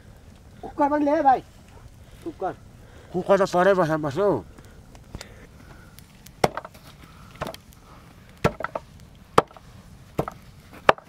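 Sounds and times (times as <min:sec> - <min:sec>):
blade chopping into wood: 0:06.4 - 0:06.7, 0:08.4 - 0:08.8.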